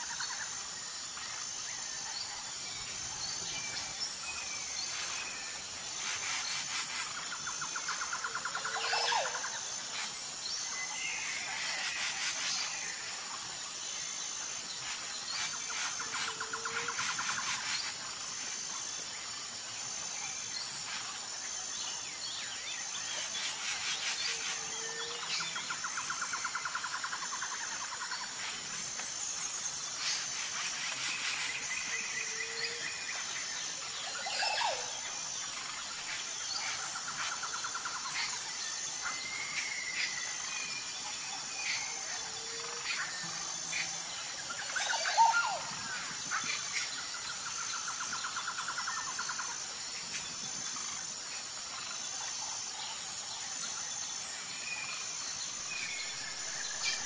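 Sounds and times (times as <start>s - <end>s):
insects trilling: 0.0s - 57.0s.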